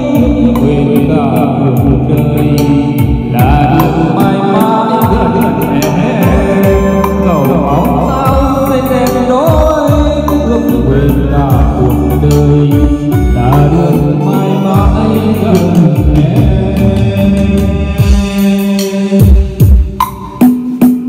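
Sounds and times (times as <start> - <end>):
live music through pa system: 0.0 - 21.0
steady drum beat: 0.0 - 21.0
sliding melodic line: 1.9 - 17.6.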